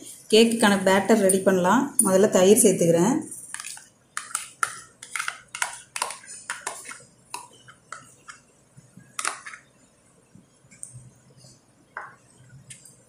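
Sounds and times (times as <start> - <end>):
spoon scraping and tapping tub: 3.3 - 9.7.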